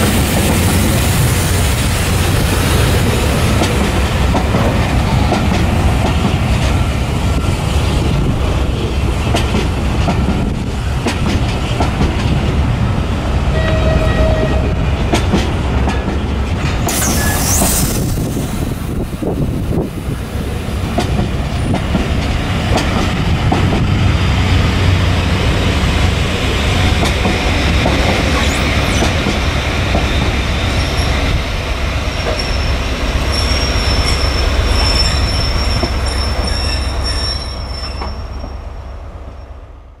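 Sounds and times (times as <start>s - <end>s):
train wheels rumbling on rails: 0.0s - 40.0s
high wheel squeal: 16.9s - 18.2s, 32.1s - 38.6s.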